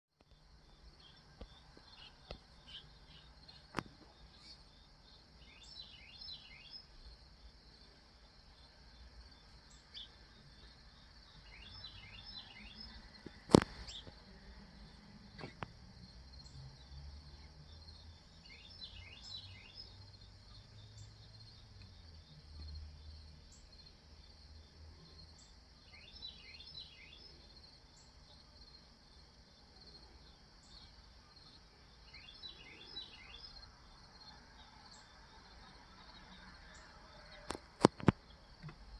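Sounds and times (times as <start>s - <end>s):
insects chirping: 0.2s - 38.9s.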